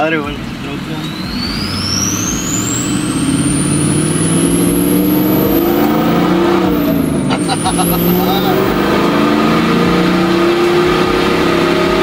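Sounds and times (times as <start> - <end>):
truck engine accelerating: 0.0 - 12.0
turbo whistle rising: 1.0 - 9.2.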